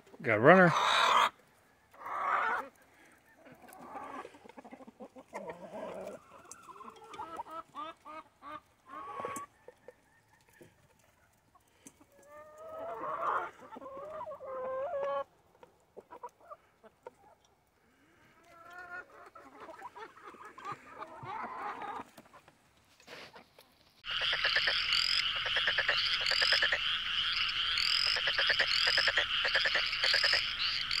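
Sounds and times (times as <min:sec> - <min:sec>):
hens clucking softly: 0:00.5 - 0:31.0
chorus of trills and high chirps: 0:24.0 - 0:31.0.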